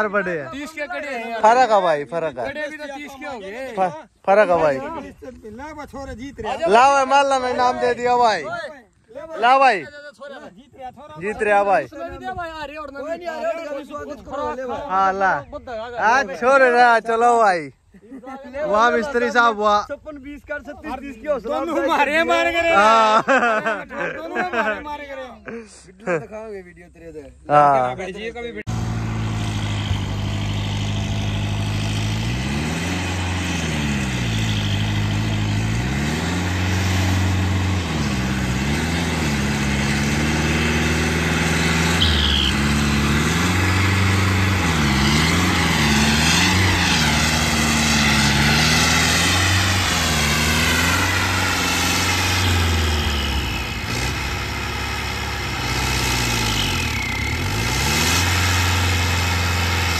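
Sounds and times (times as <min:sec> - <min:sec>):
tractor diesel engine under load: 0:28.5 - 0:59.9
high whistle: 0:42.0 - 0:42.6.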